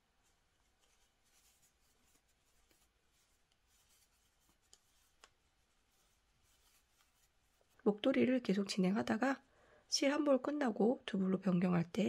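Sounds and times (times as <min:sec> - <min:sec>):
yarn rustling through stitches: 0:00.0 - 0:08.8.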